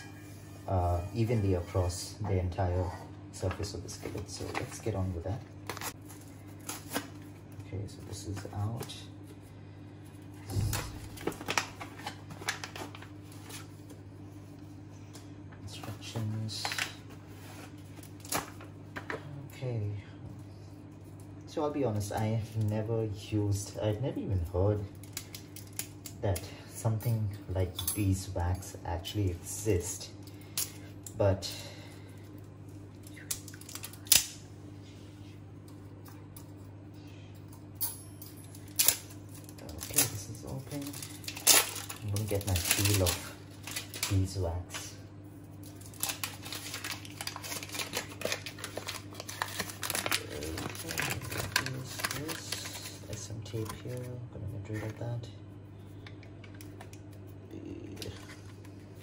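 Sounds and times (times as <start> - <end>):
steady low hum: 0.0 - 59.0
paper packet crinkling: 3.4 - 7.6, 10.6 - 14.0, 38.6 - 54.0
sharp paper crackles: 10.6 - 13.8, 38.8 - 45.0, 45.6 - 53.9.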